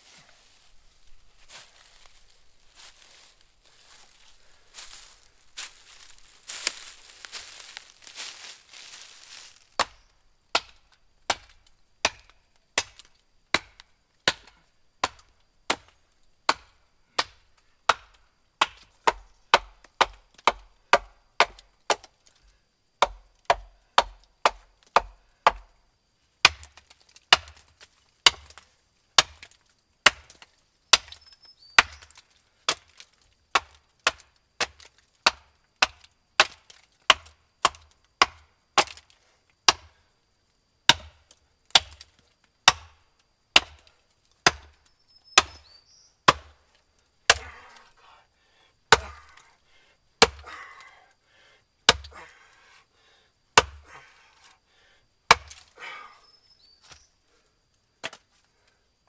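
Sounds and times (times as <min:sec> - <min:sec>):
axe chopping wood: 0:09.8 - 0:22.1, 0:23.0 - 0:25.7, 0:26.4 - 0:28.6, 0:29.2 - 0:31.2, 0:31.8 - 0:39.1, 0:39.7 - 0:40.0, 0:40.9 - 0:44.8, 0:45.4 - 0:45.6, 0:46.3 - 0:46.6, 0:47.3 - 0:47.8, 0:48.9 - 0:49.4, 0:50.2 - 0:50.9, 0:51.9 - 0:52.3, 0:53.6 - 0:54.0, 0:55.3 - 0:55.8, 0:58.0 - 0:58.2.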